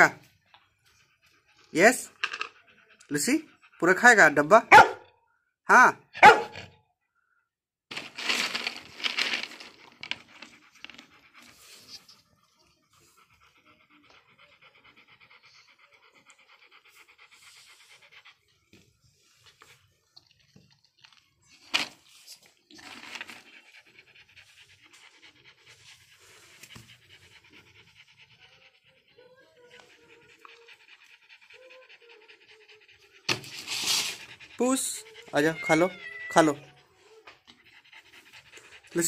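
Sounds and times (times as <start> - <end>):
dog panting: 0.0 - 5.1, 7.9 - 39.0.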